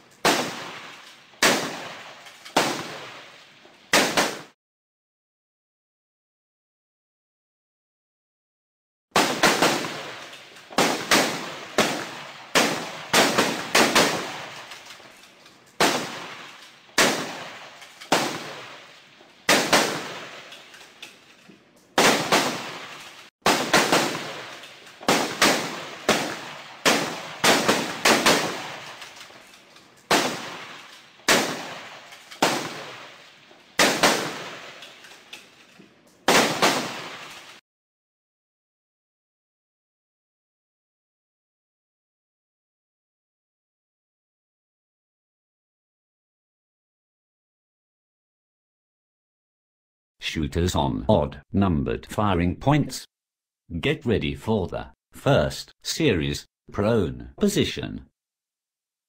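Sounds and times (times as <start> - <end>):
gunshots with echo: 0.2 - 4.6, 9.2 - 14.8, 15.8 - 20.5, 22.0 - 29.2, 30.1 - 35.0, 36.3 - 37.6.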